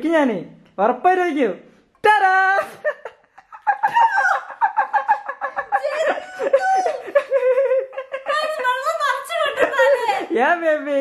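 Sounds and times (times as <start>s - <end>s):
woman shrieking laughter: 3.6s - 10.2s
woman squealing: 3.8s - 4.7s, 5.8s - 7.2s.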